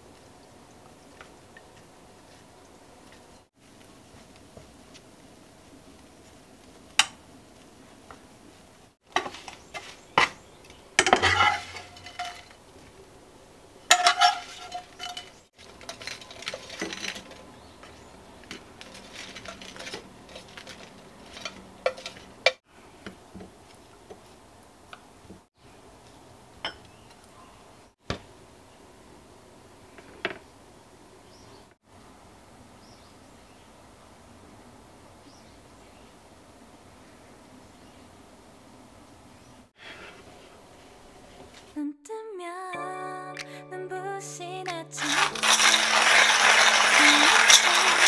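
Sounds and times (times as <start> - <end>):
dishes clinking: 11.0 - 12.5, 13.9 - 17.4, 26.6 - 26.9.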